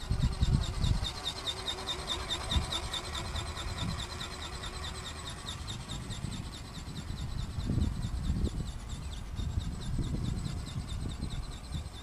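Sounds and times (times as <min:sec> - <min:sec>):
wind on microphone: 0:00.0 - 0:01.2, 0:05.6 - 0:12.0
model motor buzzing: 0:00.0 - 0:12.0.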